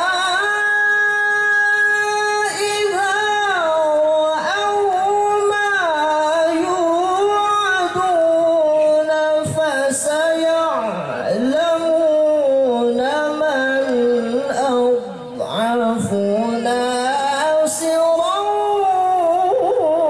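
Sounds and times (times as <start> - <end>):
man reciting melodically: 0.0 - 20.0.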